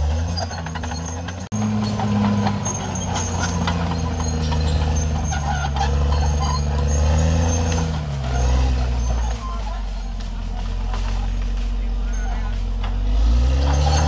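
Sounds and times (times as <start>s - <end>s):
bulldozer diesel engine running: 0.0s - 14.0s
steel tracks clanking: 0.0s - 14.0s.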